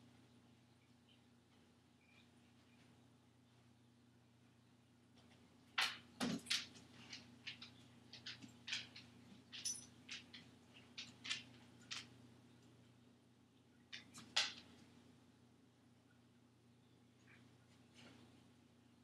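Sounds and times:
faint steady hum: 0:00.0 - 0:19.0
dog claws clattering on counter: 0:05.8 - 0:12.1.

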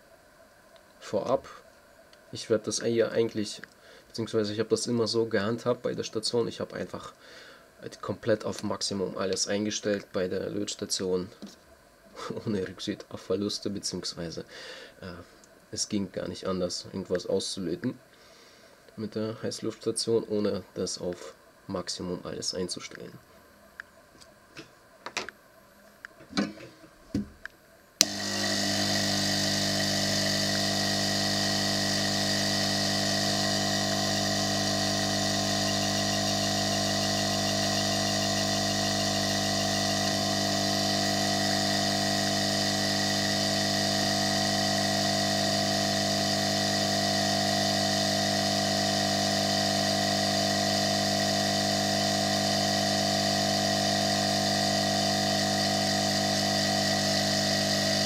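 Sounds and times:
loud hissing air blower hum: 0:28.0 - 0:58.0.

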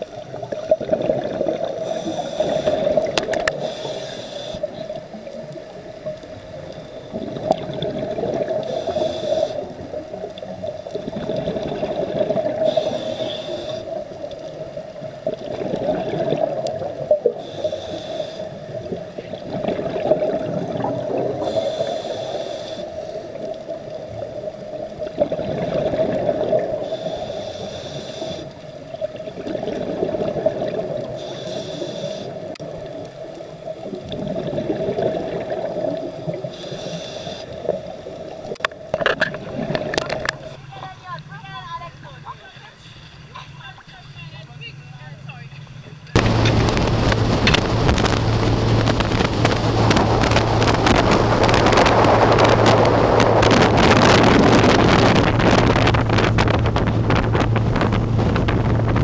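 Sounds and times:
steady hum: 0:00.0 - 0:33.7, 0:35.2 - 0:59.0
exhaled air bubbling: 0:00.0 - 0:42.2, 0:46.0 - 0:59.0
regulator inhalation hiss: 0:01.8 - 0:04.8, 0:08.6 - 0:09.8, 0:12.6 - 0:14.0, 0:17.2 - 0:18.7, 0:21.4 - 0:23.4, 0:26.8 - 0:28.6, 0:31.2 - 0:32.5, 0:36.4 - 0:37.6.

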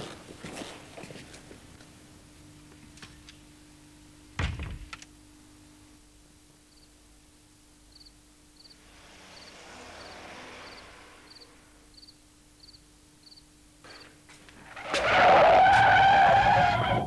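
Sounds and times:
low steady hum: 0:00.0 - 0:14.8
faint cricket chirps: 0:05.2 - 0:14.2
soft rushing noise: 0:08.6 - 0:12.5.

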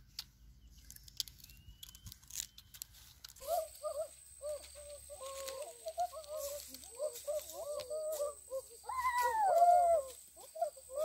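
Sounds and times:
sugarcane being bitten and chewed: 0:00.0 - 0:03.6
warbling bird-like calls: 0:03.4 - 0:11.0.

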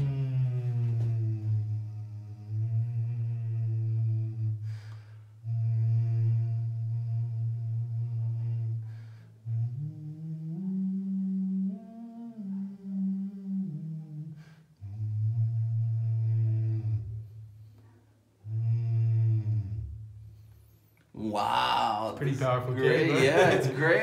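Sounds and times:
man humming long notes: 0:00.0 - 0:17.4, 0:18.4 - 0:20.1.

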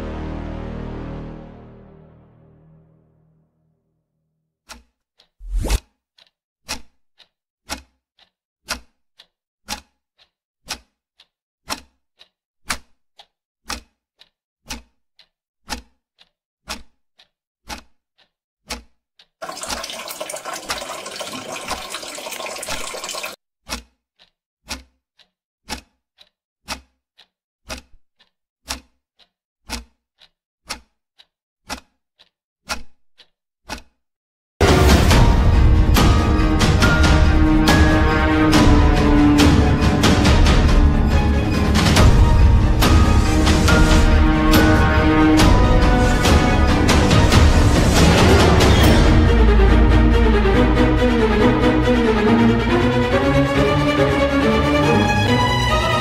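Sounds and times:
clock ticking: 0:04.7 - 0:34.0.

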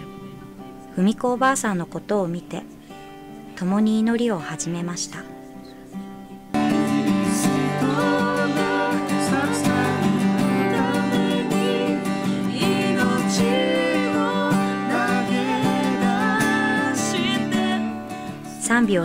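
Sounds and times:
acoustic guitar strumming: 0:02.1 - 0:19.0
person singing: 0:06.6 - 0:18.6.

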